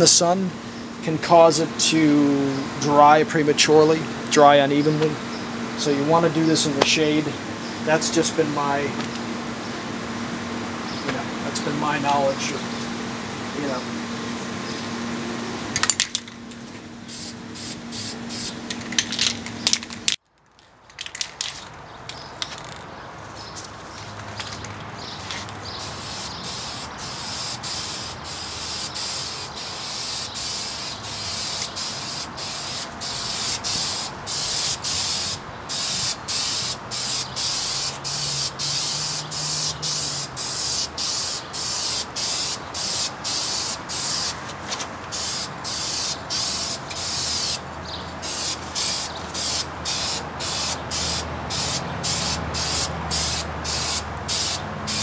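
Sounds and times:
spray paint can hissing: 0:17.1 - 0:19.9, 0:25.2 - 0:44.4, 0:45.1 - 0:47.6, 0:48.2 - 0:55.0.

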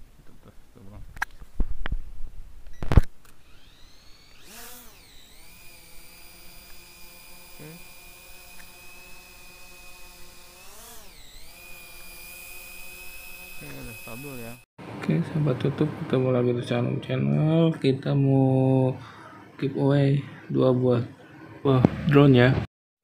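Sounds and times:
drone motors whining: 0:02.8 - 0:14.6.

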